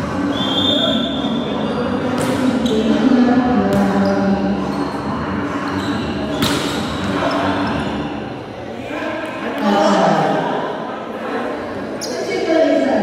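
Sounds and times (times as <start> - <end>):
volleyball hits: 2.1 - 2.6, 6.3 - 7.2.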